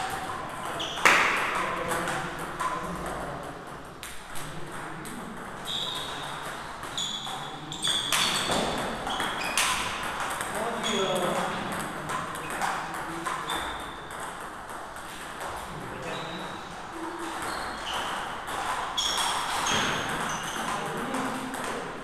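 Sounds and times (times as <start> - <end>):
table tennis ball pings: 5.6 - 15.6, 17.2 - 21.8.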